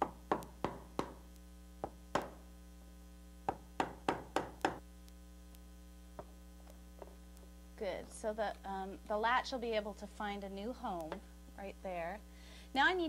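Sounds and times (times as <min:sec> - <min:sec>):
hammer tapping chisel: 0:00.0 - 0:01.2, 0:03.5 - 0:04.8
steady mains hum: 0:00.0 - 0:13.0.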